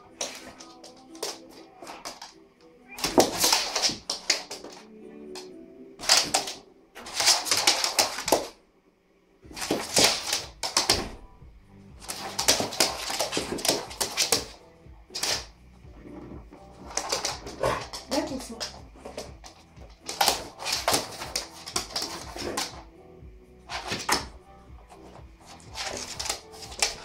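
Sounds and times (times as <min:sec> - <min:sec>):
dog claws skittering on laminate floor: 0:00.0 - 0:02.4, 0:03.0 - 0:04.8, 0:06.0 - 0:08.5, 0:09.5 - 0:11.2, 0:12.0 - 0:15.5, 0:16.2 - 0:22.8, 0:23.7 - 0:27.0.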